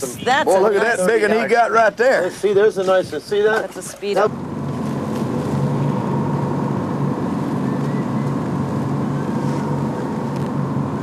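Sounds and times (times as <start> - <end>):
boat engine droning: 4.0 - 11.0.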